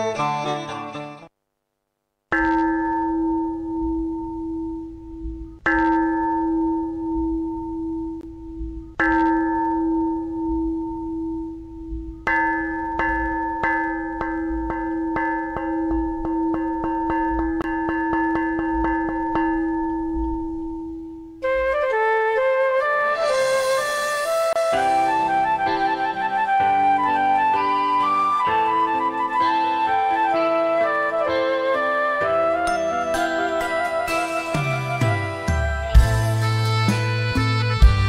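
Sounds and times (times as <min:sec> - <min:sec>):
bell ringing: 0:02.3 - 0:08.2.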